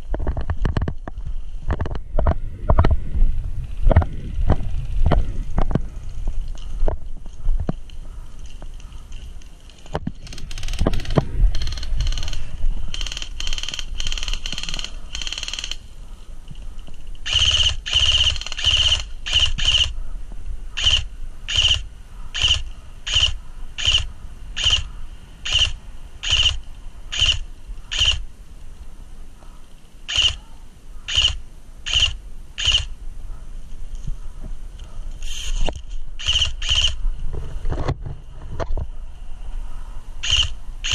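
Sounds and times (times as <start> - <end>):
electric rifle firing bursts: 10.3 - 15.8, 17.2 - 20.0, 20.8 - 28.2, 30.1 - 30.4, 31.1 - 32.9, 36.2 - 37.0, 40.2 - 40.9.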